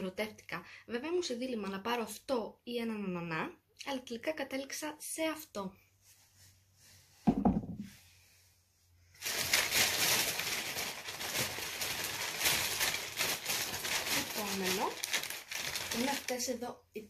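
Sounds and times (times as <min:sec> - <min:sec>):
short knock: 0:07.3 - 0:07.9
plastic bag rustling: 0:09.1 - 0:16.6.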